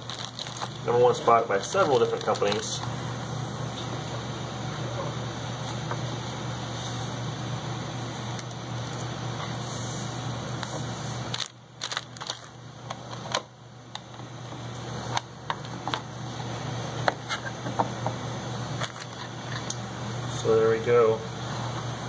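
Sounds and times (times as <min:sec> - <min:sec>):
plastic bags crinkling and clicks: 0:00.0 - 0:01.0, 0:01.6 - 0:02.9, 0:11.3 - 0:12.6, 0:18.8 - 0:19.6
wrapping sheet rustling: 0:00.0 - 0:02.8, 0:11.3 - 0:12.5
steady low hum: 0:00.0 - 0:22.0.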